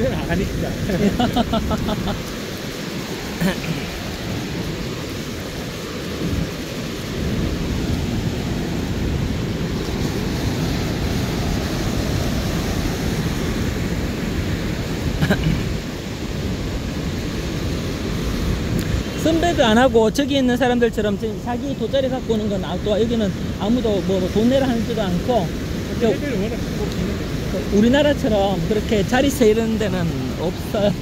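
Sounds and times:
surf breaking on beach: 0.0 - 31.0
wind on microphone: 2.9 - 19.2.

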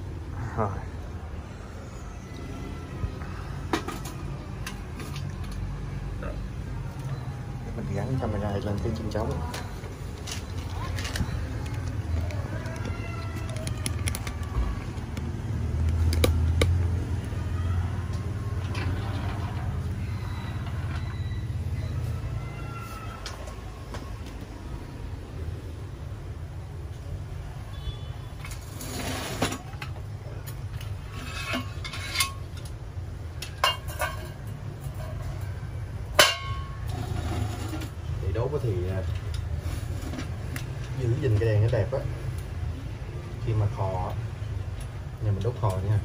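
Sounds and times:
city traffic rumble: 0.0 - 46.0
metal and enamel clinking: 31.1 - 32.7, 33.4 - 35.5, 36.2 - 37.0.

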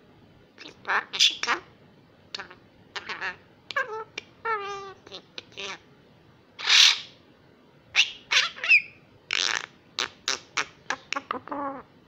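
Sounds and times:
bird harsh squawk and chips: 6.6 - 7.1, 8.0 - 11.2.

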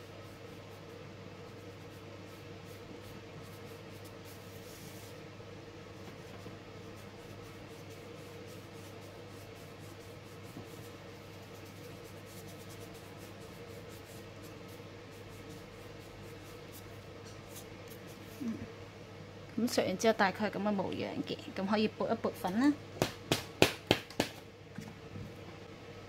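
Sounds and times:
fingertips rubbing pastel on paper: 0.0 - 5.2, 6.0 - 18.5
steady low hum: 0.0 - 26.0.

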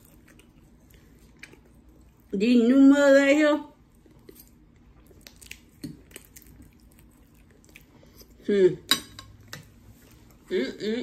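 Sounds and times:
person chewing: 0.0 - 2.3, 3.8 - 8.4.

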